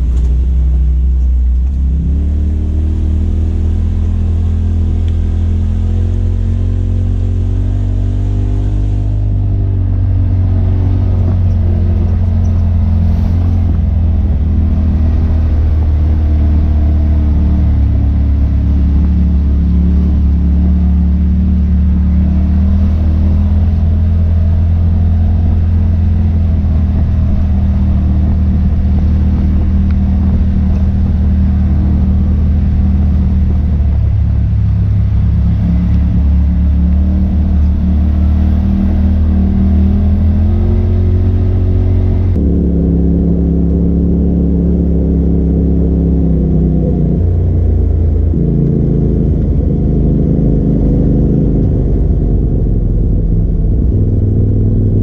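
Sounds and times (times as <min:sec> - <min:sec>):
vehicle engine running: 0:00.0 - 0:55.0.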